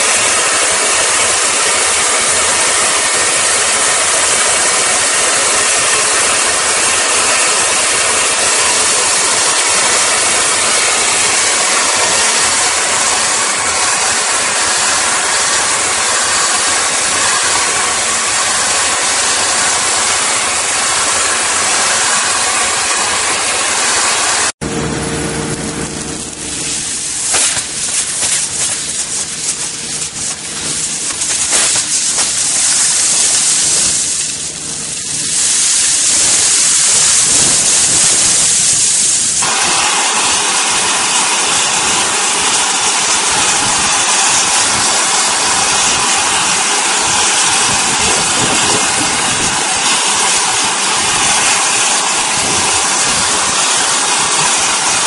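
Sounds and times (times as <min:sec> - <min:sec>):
industrial vacuum sucking gravel: 0:00.0 - 0:55.0
low hum: 0:06.5 - 0:38.7.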